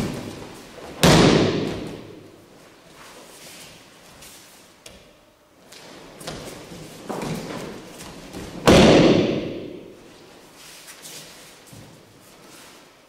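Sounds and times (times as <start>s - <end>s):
soft scuffing: 9.9s - 13.0s.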